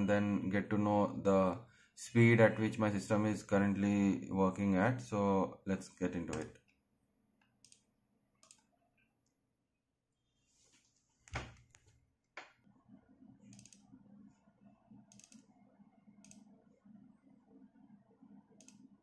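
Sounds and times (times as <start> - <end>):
computer mouse clicks: 6.3 - 6.8, 7.4 - 9.4, 13.4 - 14.0, 15.1 - 15.6, 16.2 - 16.6, 18.5 - 19.0
faint low hum: 11.4 - 19.0.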